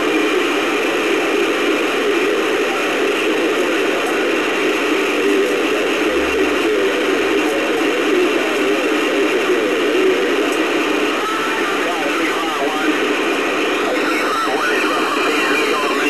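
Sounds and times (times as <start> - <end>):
radio static hiss: 0.0 - 16.0
faint warbling radio signals: 6.1 - 16.0.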